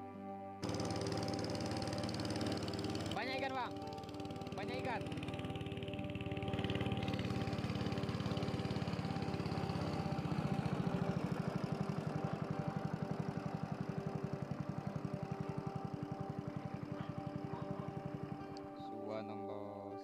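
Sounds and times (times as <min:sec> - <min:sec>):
boat engine chugging: 0:00.6 - 0:18.9.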